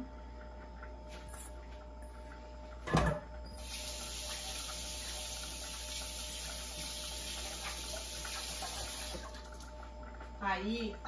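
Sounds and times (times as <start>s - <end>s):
kitchen water tap running: 3.5s - 10.2s.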